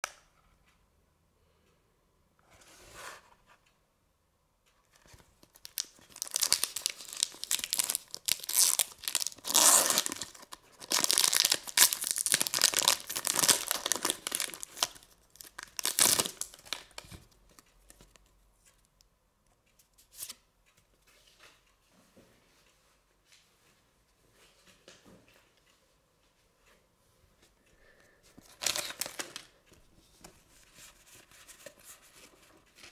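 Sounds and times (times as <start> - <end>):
cards rustling: 5.1 - 17.1, 28.4 - 29.6
foil wrapper crinkling and tearing: 5.5 - 17.0, 28.5 - 29.5.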